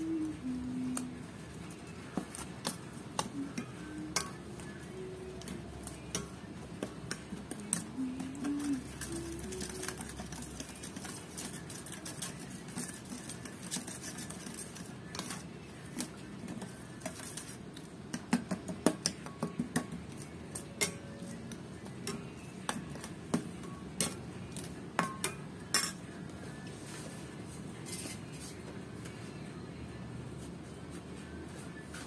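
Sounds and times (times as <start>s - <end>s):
metal spoon clinking against bowl: 18.1s - 26.1s.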